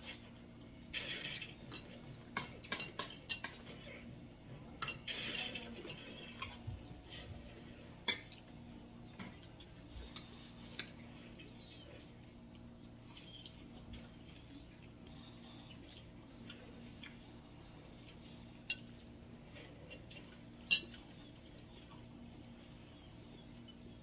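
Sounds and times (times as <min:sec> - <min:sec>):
utensils clinking on plates: 0:00.9 - 0:04.1, 0:04.7 - 0:08.5, 0:18.2 - 0:21.4.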